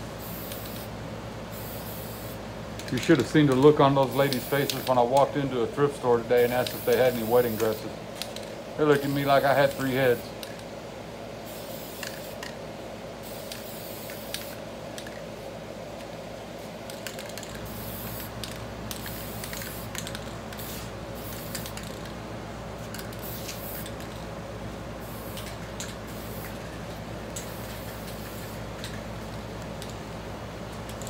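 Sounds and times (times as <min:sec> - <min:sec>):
steady background hum: 0:00.0 - 0:31.0
spray paint hissing: 0:00.2 - 0:00.9, 0:01.5 - 0:02.9, 0:04.0 - 0:05.1, 0:06.4 - 0:10.6, 0:11.4 - 0:12.6, 0:13.2 - 0:15.1, 0:16.8 - 0:22.1, 0:22.8 - 0:24.2, 0:25.0 - 0:29.0.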